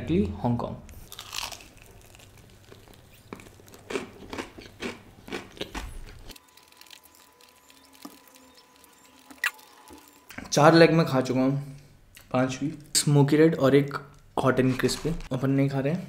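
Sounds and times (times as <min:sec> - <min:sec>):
man biting and chewing: 0:01.1 - 0:10.2.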